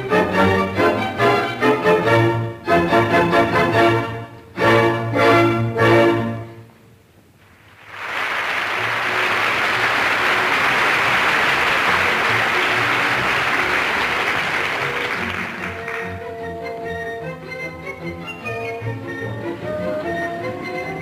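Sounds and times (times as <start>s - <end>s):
orchestra playing: 0.0s - 6.6s, 9.1s - 21.0s
audience applauding: 7.5s - 16.3s.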